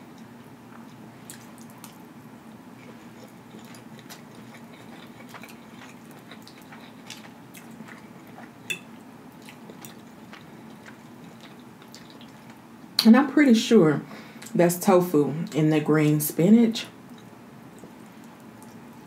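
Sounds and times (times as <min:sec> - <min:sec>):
faint steady hum: 0:00.0 - 0:19.0
person chewing food: 0:00.1 - 0:12.6, 0:17.1 - 0:19.0.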